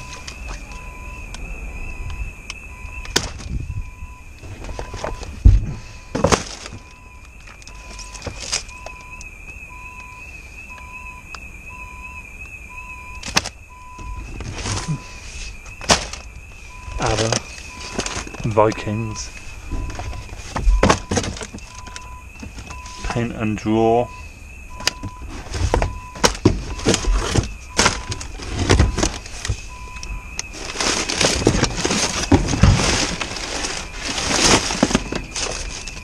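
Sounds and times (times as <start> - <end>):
low alarm beep: 0.0 - 36.0
warbling alarm: 0.0 - 36.0
rustling of magazines and cardboard: 4.4 - 9.2, 13.2 - 23.3, 24.8 - 36.0
thuds in a bin: 19.7 - 21.6.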